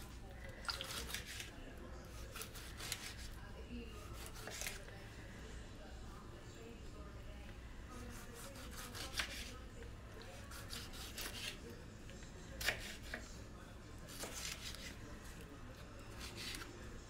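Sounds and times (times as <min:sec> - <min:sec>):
knife cutting tomato on board: 0:00.7 - 0:01.5, 0:02.1 - 0:03.4, 0:04.1 - 0:04.8, 0:08.0 - 0:09.6, 0:10.3 - 0:11.6, 0:12.6 - 0:13.3, 0:14.1 - 0:15.0, 0:16.0 - 0:16.7.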